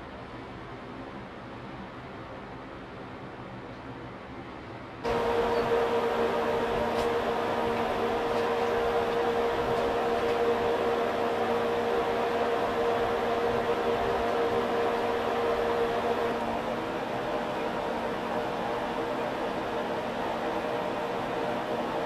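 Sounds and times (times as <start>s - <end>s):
cooling fan noise: 0.0s - 22.0s
electrical hum: 5.0s - 22.0s.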